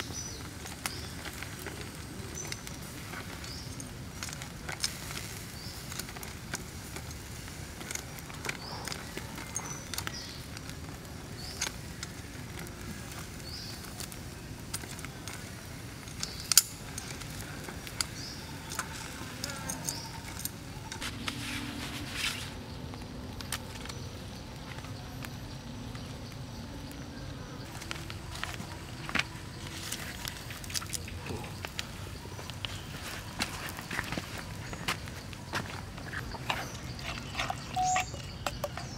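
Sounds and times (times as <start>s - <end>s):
faint high chirps: 36.5s - 38.9s.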